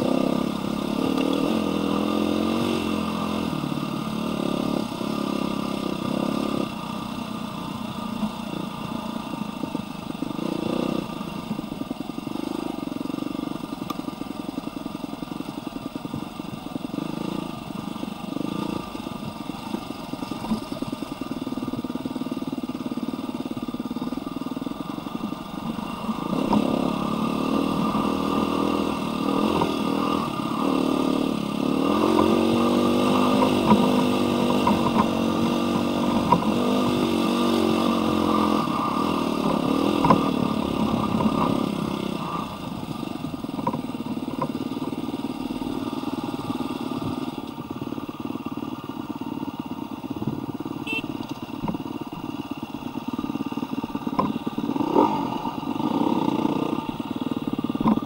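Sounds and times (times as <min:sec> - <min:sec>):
dirt bike engine revving: 0:00.0 - 0:06.9, 0:24.7 - 0:43.8, 0:50.8 - 0:51.1, 0:54.1 - 0:58.0.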